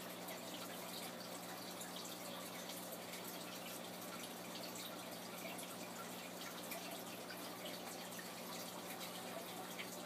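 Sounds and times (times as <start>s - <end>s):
water trickling and dripping: 0.0s - 10.0s.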